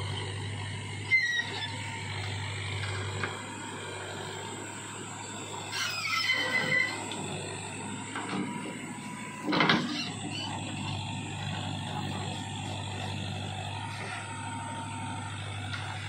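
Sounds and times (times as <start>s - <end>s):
tractor engine running: 0.0s - 16.0s
backhoe boom squealing: 1.0s - 1.8s, 5.6s - 7.2s, 9.4s - 10.8s.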